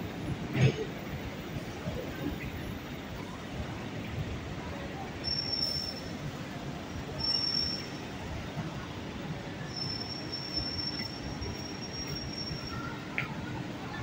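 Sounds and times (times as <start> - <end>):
street traffic rumble: 0.0 - 14.0
steel wheels squealing on rails: 5.0 - 14.0.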